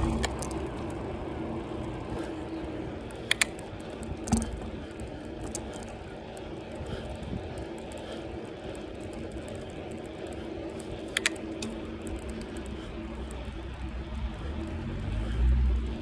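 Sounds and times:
sharp clicks: 0.0 - 1.0, 3.0 - 16.0
bicycle tyre and wind noise: 0.0 - 16.0.

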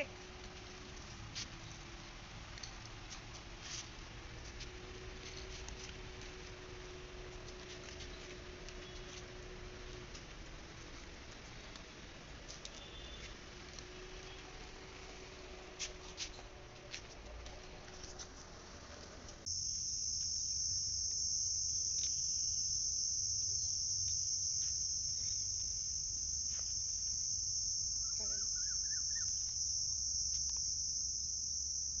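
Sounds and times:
high-pitched insect drone: 19.5 - 32.0
chirps: 28.0 - 29.6.

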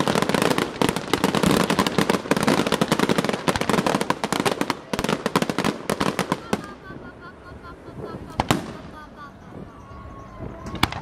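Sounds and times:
fireworks crackling and banging: 0.0 - 9.7, 10.4 - 11.0.

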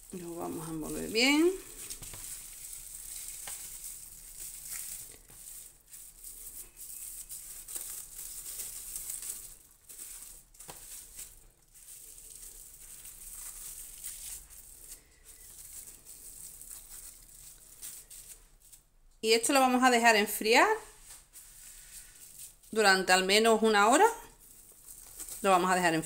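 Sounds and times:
cling film crinkling: 0.0 - 19.2, 21.0 - 22.8, 24.1 - 26.0.

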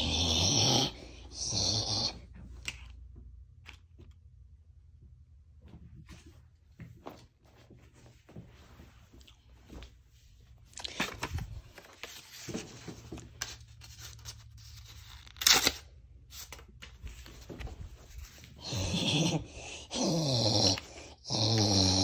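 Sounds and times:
paper tearing and rustling: 10.8 - 18.5.

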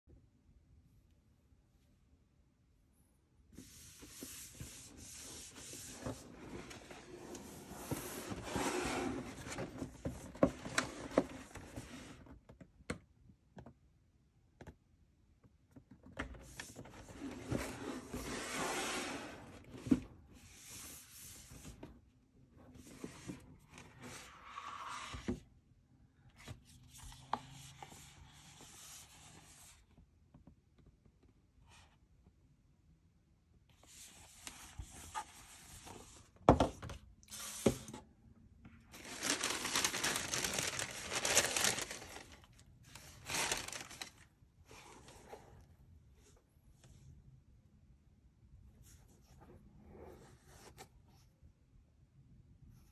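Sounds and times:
cardboard box rubbing and scraping: 5.5 - 9.6.

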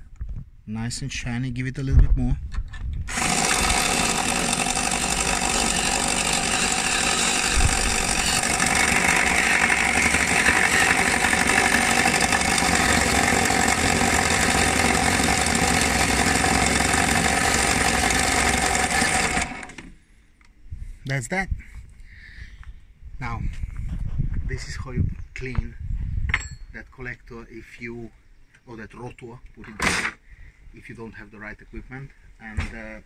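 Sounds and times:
file rasping on metal: 3.1 - 13.2
electric drill whirring: 3.1 - 20.0.

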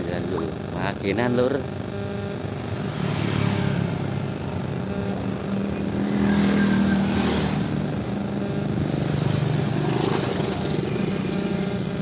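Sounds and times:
small motorcycle engines: 2.6 - 12.0.

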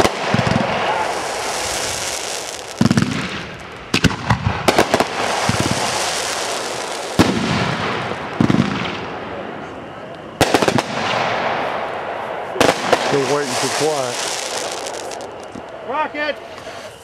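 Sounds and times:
hissing rush: 0.0 - 3.8, 4.7 - 7.2, 11.6 - 17.0
fireworks bangs: 0.0 - 17.0.

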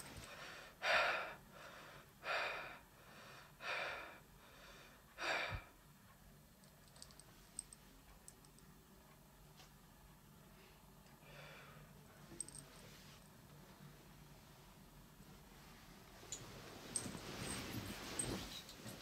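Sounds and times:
person breathing heavily: 0.2 - 5.8, 11.2 - 11.9.

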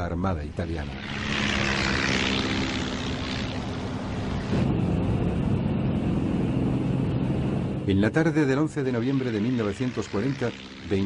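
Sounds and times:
propeller aircraft engine running: 0.0 - 11.0.

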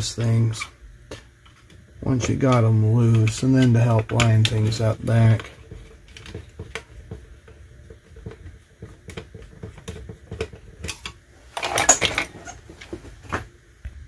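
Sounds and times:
plastic rattle: 7.9 - 13.0.

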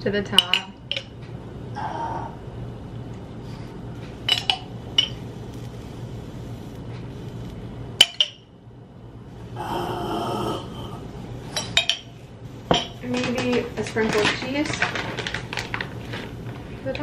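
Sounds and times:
steady low hum: 0.0 - 17.0
breathy noise: 9.5 - 11.2.

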